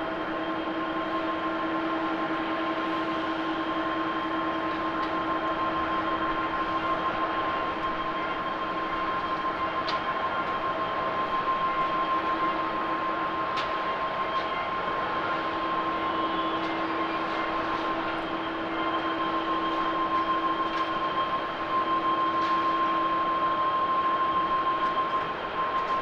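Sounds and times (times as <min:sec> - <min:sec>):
jet engines running: 0:00.0 - 0:26.0.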